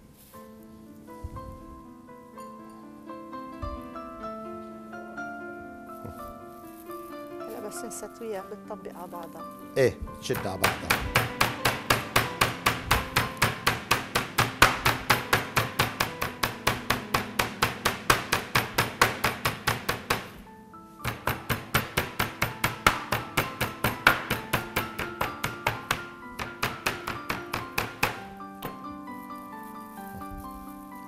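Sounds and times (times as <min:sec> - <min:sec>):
rolling pin thudding on meat: 0:10.3 - 0:20.4, 0:21.0 - 0:29.0.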